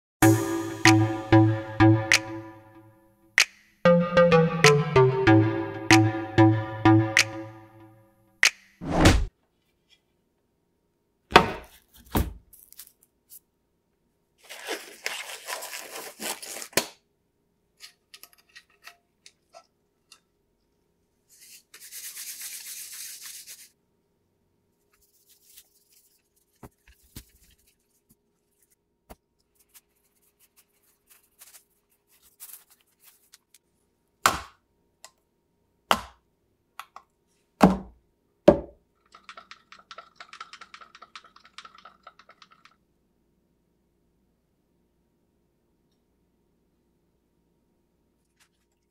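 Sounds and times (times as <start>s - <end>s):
rustling: 29.4s - 33.6s.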